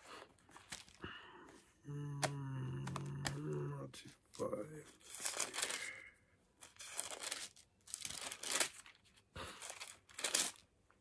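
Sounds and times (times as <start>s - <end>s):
thin pages rustling: 0.0s - 1.6s, 4.1s - 5.9s, 6.6s - 10.7s.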